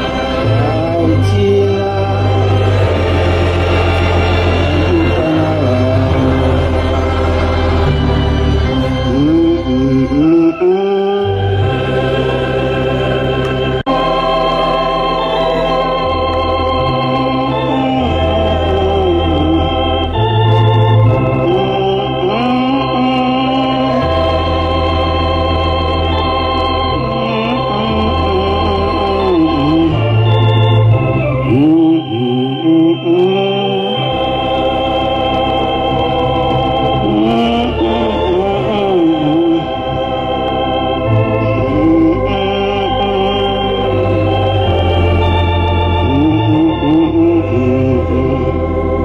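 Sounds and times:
person singing: 0.0s - 12.4s, 13.8s - 25.1s, 26.1s - 34.5s, 36.9s - 40.3s, 41.0s - 45.2s, 46.0s - 49.0s
electronic organ chords: 0.0s - 49.0s.

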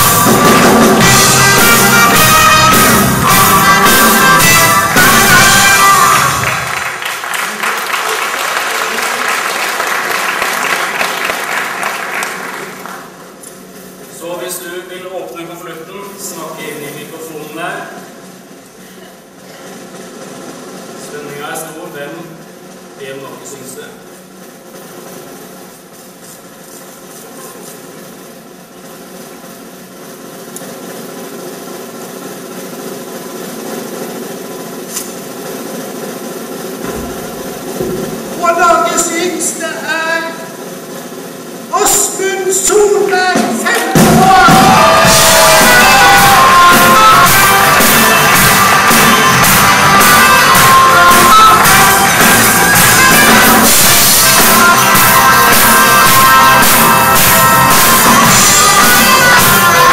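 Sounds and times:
audience applauding: 0.0s - 13.4s, 42.9s - 59.9s
snare drum roll: 0.0s - 14.2s, 28.7s - 59.9s.

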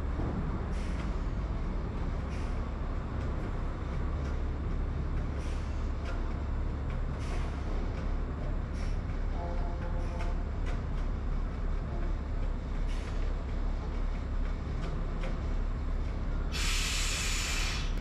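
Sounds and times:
truck diesel engine idling: 0.0s - 18.0s
air brake hiss: 16.5s - 18.0s.

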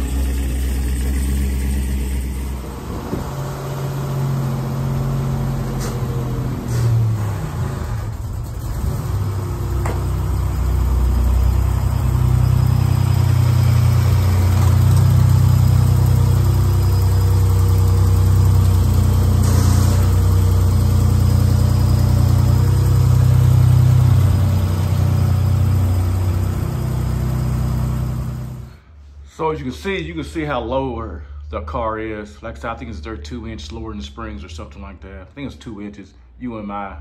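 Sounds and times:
car exhaust rumble: 0.0s - 28.8s.

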